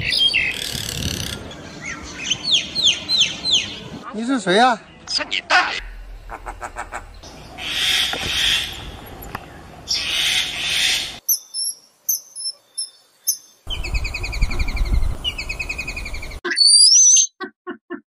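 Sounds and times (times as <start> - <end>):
myna calling: 5.1 - 9.0
harsh hissing bird calls: 6.1 - 9.0, 9.6 - 16.4.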